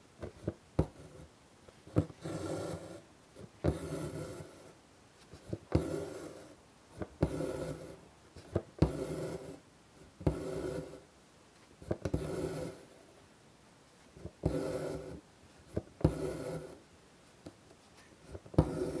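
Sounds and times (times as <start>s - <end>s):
needle tapping through fabric: 15.7s - 16.4s.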